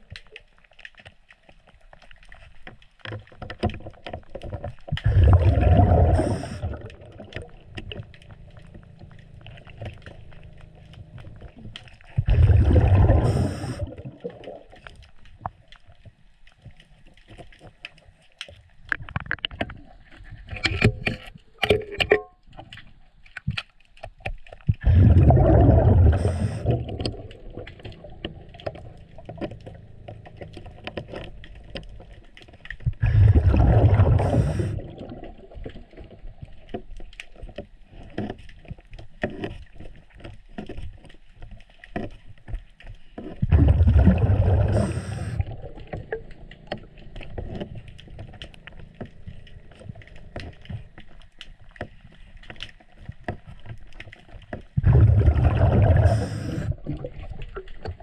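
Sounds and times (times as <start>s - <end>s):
underwater regulator bubble bursts: 5.0s - 8.0s, 11.3s - 14.7s, 24.8s - 31.7s, 32.8s - 35.6s, 43.4s - 50.4s, 54.8s - 58.0s.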